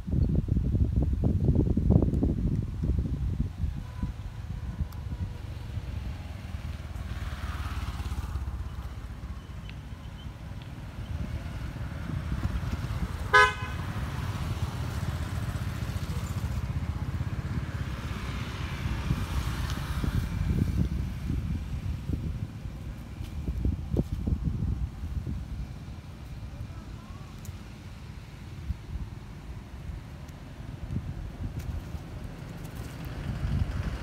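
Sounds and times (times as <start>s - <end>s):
wind and road noise: 0.0s - 34.0s
motorcycle horn toot: 13.3s - 13.8s.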